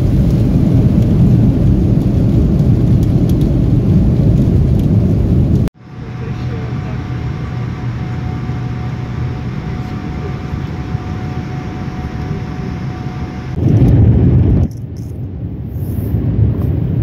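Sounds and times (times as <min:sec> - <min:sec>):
jet cabin engine hum: 0:00.0 - 0:17.0
low rumble: 0:00.0 - 0:17.0
faint steady whine: 0:05.8 - 0:13.9.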